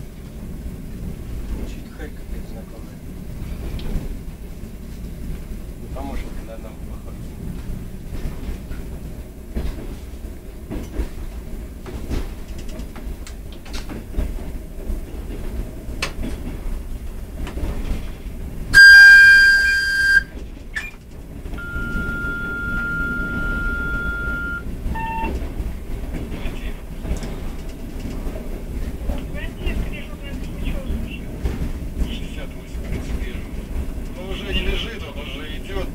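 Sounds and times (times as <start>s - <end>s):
train low rumble: 0.0s - 35.9s
wheels clicking over rail joints: 0.2s - 35.9s
train horn blast: 18.7s - 20.4s, 21.6s - 25.2s
steady high tone: 21.6s - 25.3s.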